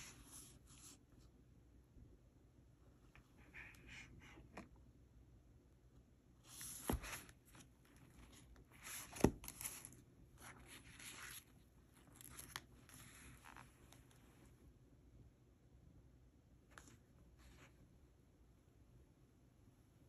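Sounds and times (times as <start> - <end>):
notebook pages turning: 6.5 - 14.2.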